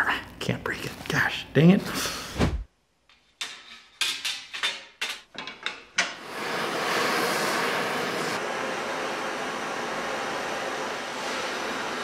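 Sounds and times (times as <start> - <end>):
metal pieces clanking on steel plate: 3.4 - 6.2
gas torch hissing: 6.1 - 12.0.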